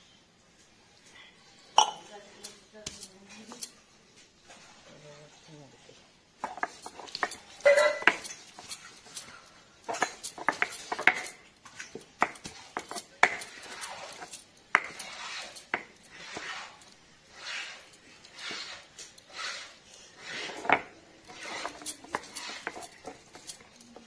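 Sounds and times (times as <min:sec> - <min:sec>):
stone knocking on stone: 0:06.4 - 0:08.7, 0:09.9 - 0:11.4, 0:12.0 - 0:16.4
gritty stone scraping: 0:06.4 - 0:24.0.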